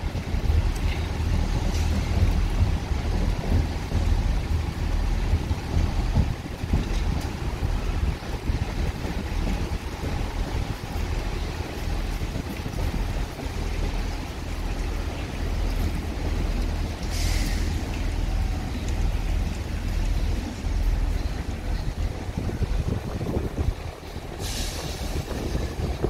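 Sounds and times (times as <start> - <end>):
electric train rumble: 0.0 - 26.0
wind buffeting microphone: 0.0 - 26.0
short hiss: 17.1 - 17.7.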